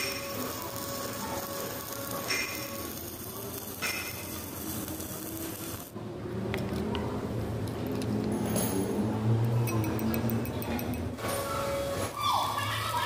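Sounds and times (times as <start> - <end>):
arc welding crackling hiss: 0.0 - 6.0.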